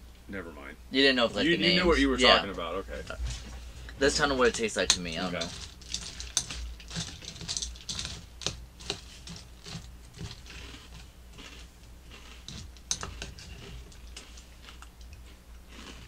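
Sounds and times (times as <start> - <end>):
cereal crunching: 4.4 - 16.0
spoons clicking against bowls: 4.5 - 10.4, 12.5 - 14.2.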